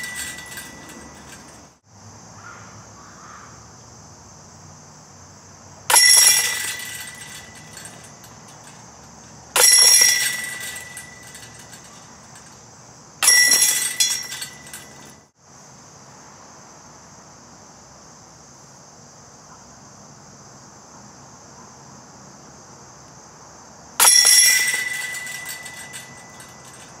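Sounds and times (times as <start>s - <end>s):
discs crashing into metal chains: 0.0s - 1.7s, 5.9s - 12.6s, 13.2s - 15.2s, 24.0s - 27.0s.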